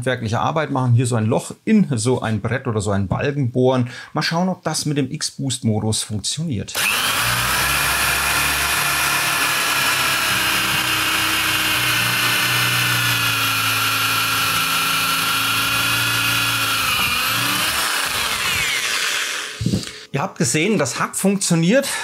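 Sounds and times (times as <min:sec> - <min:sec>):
electric drill boring through wood: 0:06.7 - 0:20.1.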